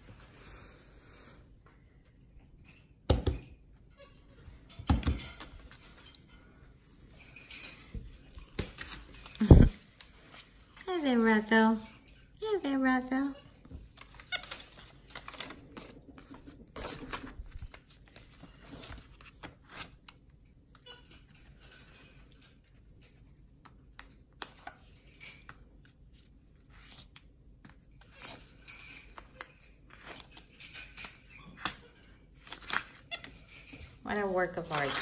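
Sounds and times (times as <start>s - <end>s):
paper rustling: 7.9s - 11.4s, 13.8s - 20.2s, 32.4s - 33.0s, 34.6s - 35.0s.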